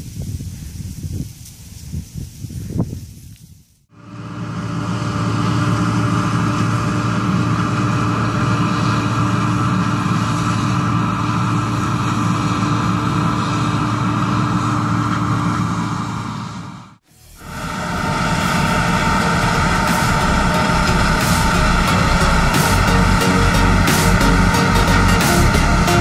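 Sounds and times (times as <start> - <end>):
combine harvester drone: 3.9 - 26.0.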